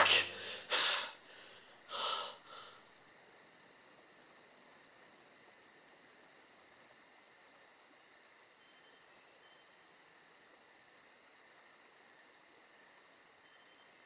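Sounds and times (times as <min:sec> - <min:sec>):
man snorting and gasping: 0:00.0 - 0:02.8.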